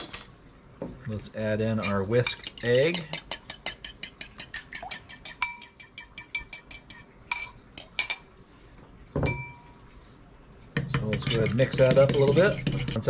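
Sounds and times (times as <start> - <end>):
fork scraping a bowl: 1.8 - 7.9, 10.8 - 13.0.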